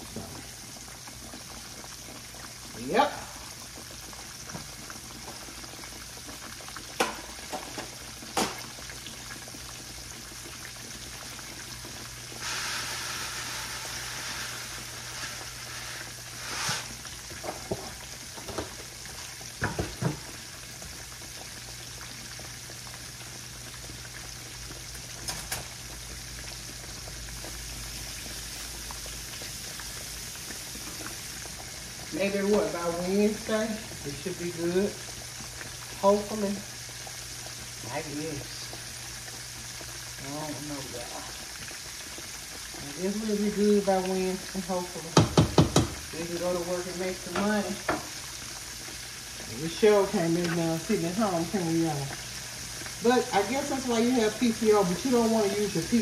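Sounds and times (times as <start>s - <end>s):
meat sizzling in oil: 0.0s - 56.0s
dry rice pouring into saucepan: 12.4s - 17.3s.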